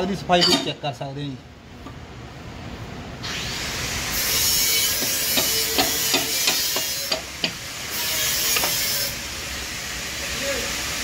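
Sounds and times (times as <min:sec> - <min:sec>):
steady hiss: 0:03.2 - 0:11.0.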